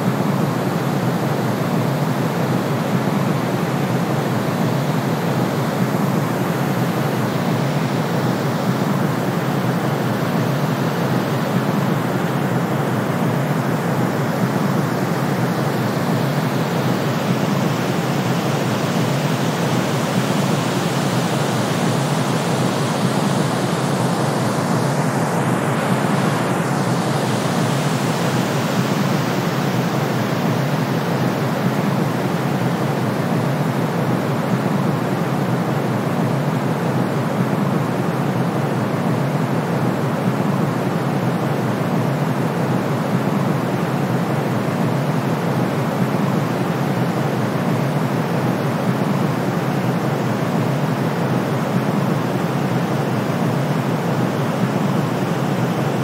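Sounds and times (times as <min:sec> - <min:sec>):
white noise hiss: 0:00.0 - 0:56.0.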